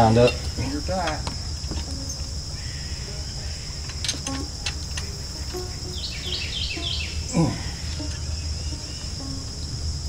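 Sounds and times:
bird chirps: 0:00.0 - 0:10.0
crickets chirring: 0:00.0 - 0:10.0
light clicks: 0:03.8 - 0:05.6.

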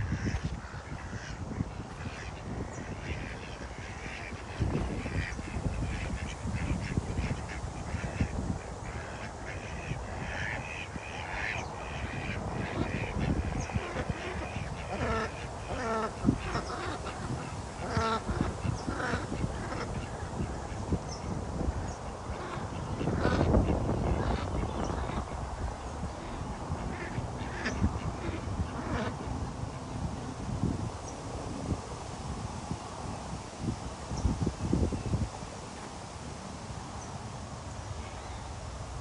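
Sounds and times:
ducks quacking: 0:00.0 - 0:30.0.

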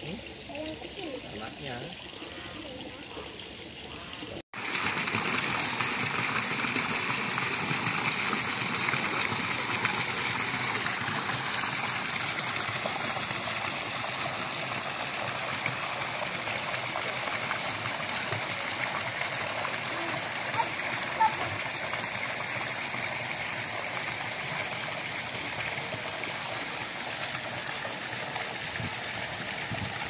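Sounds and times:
water jets splashing into pool: 0:00.0 - 0:30.0
water trickling: 0:00.0 - 0:30.0.

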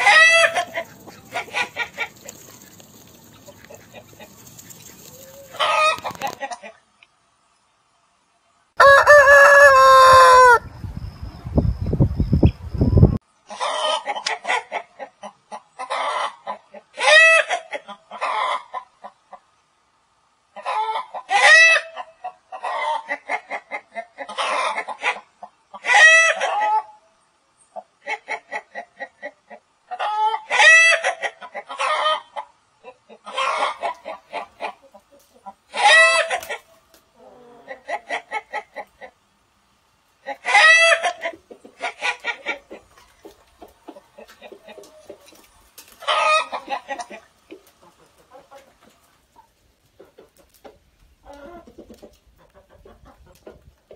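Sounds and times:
chickens squawking and clucking: 0:00.0 - 0:06.8, 0:08.8 - 0:19.6, 0:20.4 - 0:27.0, 0:27.8 - 0:53.9
rooster crowing: 0:08.8 - 0:10.7.

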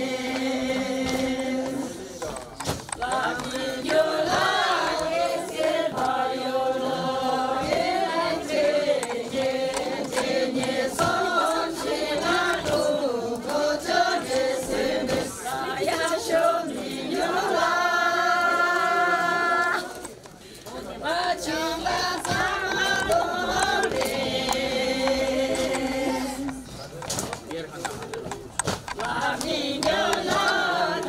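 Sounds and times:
group of voices chanting: 0:03.0 - 0:20.1, 0:29.0 - 0:31.0.

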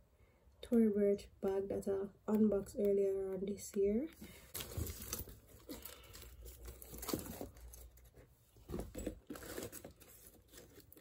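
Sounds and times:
bag rustling and crinkling: 0:04.4 - 0:11.0.

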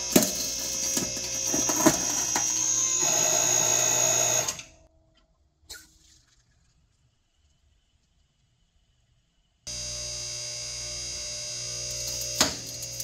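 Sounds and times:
hydraulic press motor whine: 0:00.0 - 0:04.8, 0:09.7 - 0:13.0.

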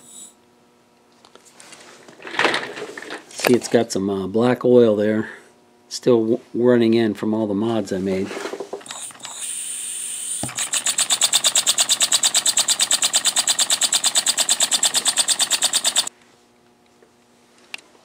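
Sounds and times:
model steam engine chuffing: 0:10.5 - 0:16.1.

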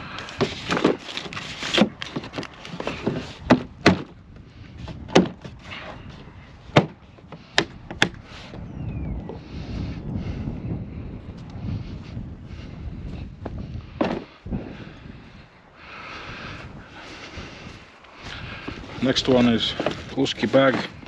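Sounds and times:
box clicks and knocks: 0:01.7 - 0:04.2, 0:05.1 - 0:05.5, 0:06.7 - 0:07.0.

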